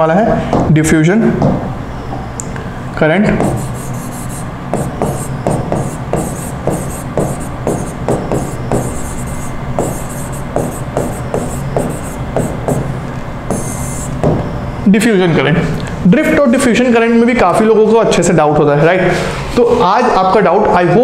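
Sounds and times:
steady low hum: 0:02.5 - 0:16.1
pen tapping and rubbing on screen: 0:03.4 - 0:14.3.

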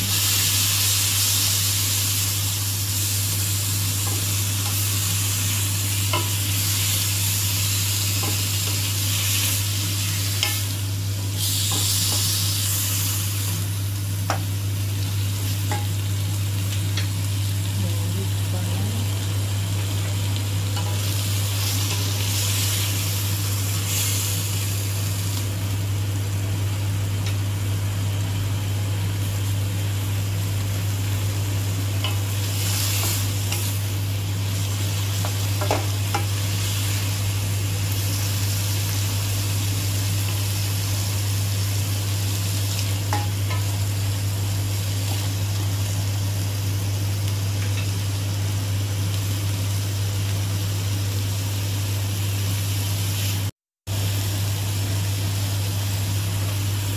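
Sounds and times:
prawns sizzling in hot oil: 0:00.0 - 0:56.9
spatula tapping wok: 0:15.7 - 0:16.0, 0:35.2 - 0:36.4, 0:43.1 - 0:43.7.

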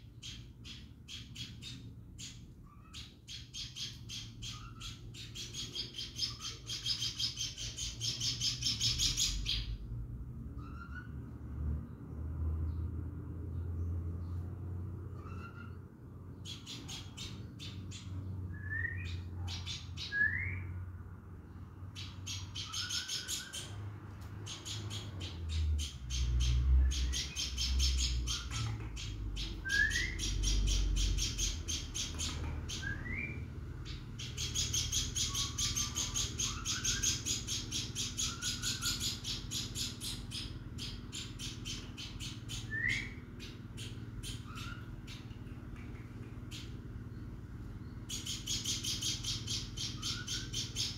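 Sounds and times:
songbird chattering: 0:00.0 - 0:09.8, 0:15.2 - 0:20.7, 0:21.5 - 0:23.8, 0:24.4 - 0:50.9.

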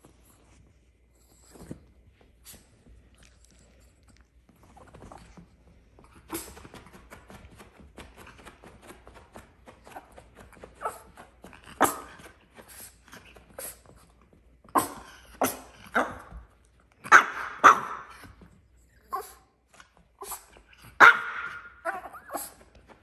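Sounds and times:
small dog yapping: 0:21.0 - 0:22.6.

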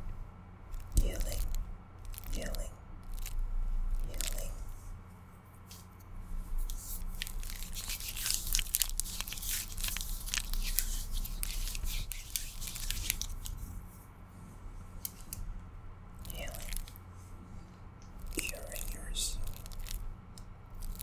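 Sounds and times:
nails crinkling and tapping: 0:00.7 - 0:04.6, 0:05.6 - 0:13.6, 0:16.2 - 0:17.1, 0:18.0 - 0:21.0.

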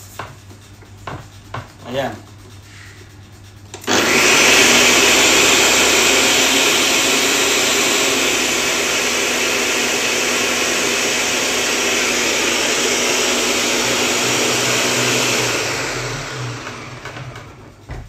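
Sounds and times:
blender motor whirring: 0:03.8 - 0:17.8.

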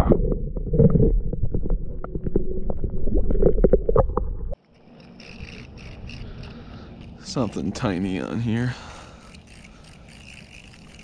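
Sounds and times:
underwater water rumble: 0:00.0 - 0:04.6.

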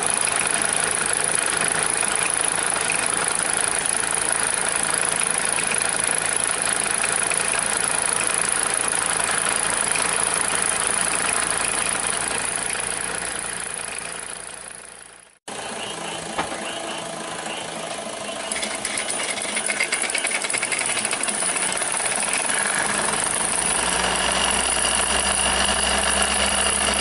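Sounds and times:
toy steam engine mechanical chatter: 0:15.6 - 0:27.0.

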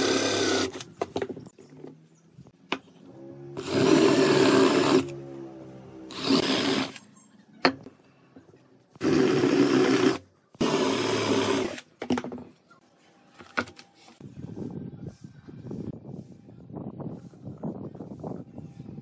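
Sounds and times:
cordless drill boring into wood: 0:00.0 - 0:00.8, 0:03.6 - 0:05.1, 0:06.1 - 0:07.0, 0:09.0 - 0:11.8.

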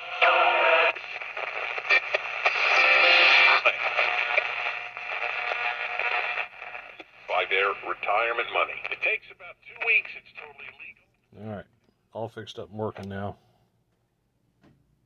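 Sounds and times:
radio static and hiss: 0:00.0 - 0:11.0.

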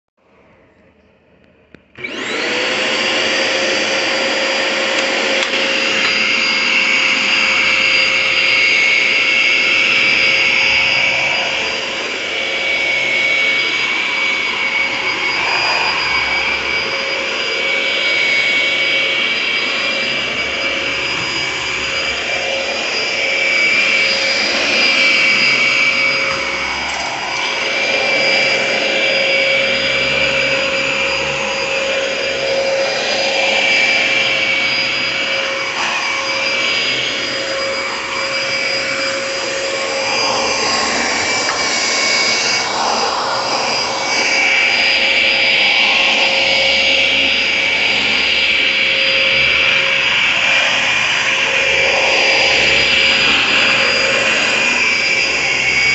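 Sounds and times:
vacuum cleaner motor whining: 0:00.9 - 0:55.9.

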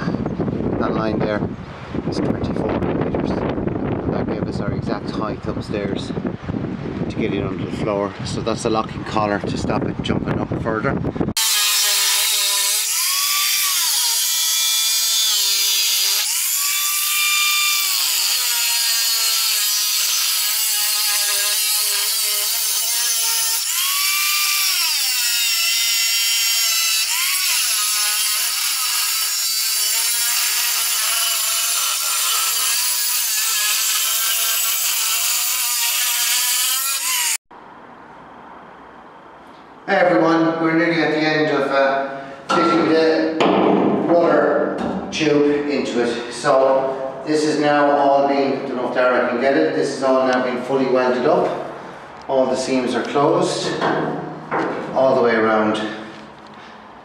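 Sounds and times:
abrasive disc cutting steel: 0:11.4 - 0:37.4.

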